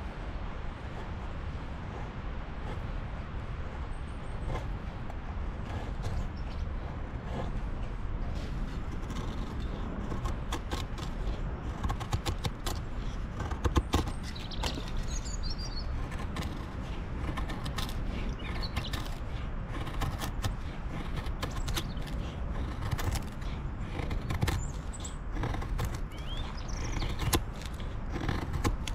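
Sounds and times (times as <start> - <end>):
bird chirping: 5.6 - 6.9, 12.3 - 16.7, 17.5 - 19.2, 23.4 - 28.2
knife scraping wood: 8.2 - 28.9.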